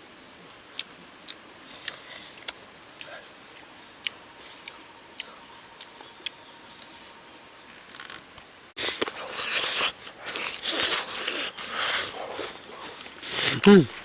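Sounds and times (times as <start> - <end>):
mouth clicks of chewing: 0.7 - 6.9.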